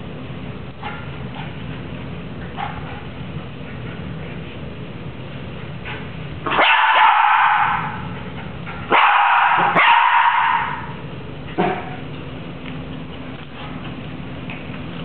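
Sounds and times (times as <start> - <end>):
dog yipping: 6.5 - 8.0, 8.9 - 11.0
small dog barking: 6.5 - 8.0, 8.9 - 11.0.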